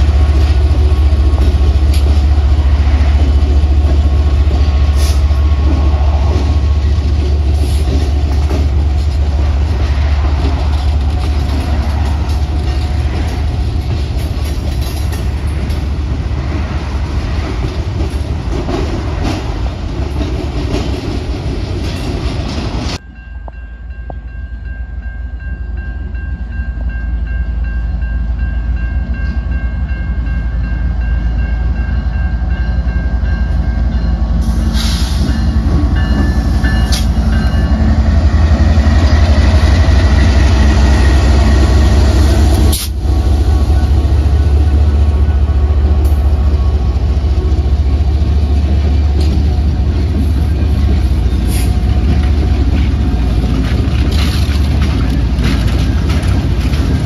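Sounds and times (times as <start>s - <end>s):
freight cars rolling: 0.0s - 23.0s, 34.4s - 57.0s
diesel locomotives rumbling past: 0.0s - 57.0s
crossing signal bell ringing: 23.0s - 34.6s, 35.2s - 38.2s.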